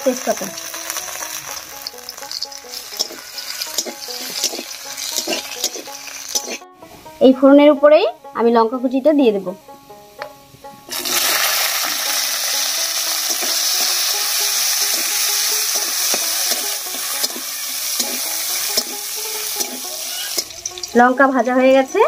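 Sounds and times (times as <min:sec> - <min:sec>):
chillies sizzling in hot oil: 0:00.0 - 0:07.3, 0:10.6 - 0:22.0
metal spatula scraping pan: 0:00.5 - 0:06.7, 0:12.8 - 0:21.1.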